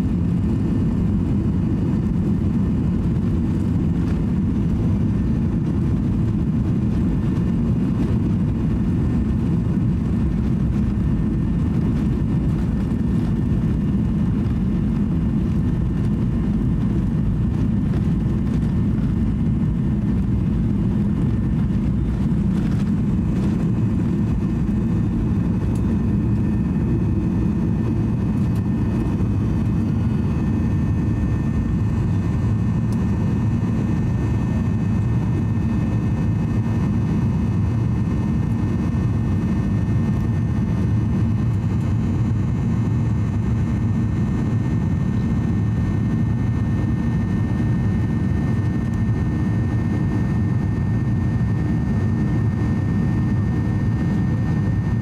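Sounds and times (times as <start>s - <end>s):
jet engine rush inside cabin: 0.0s - 55.0s.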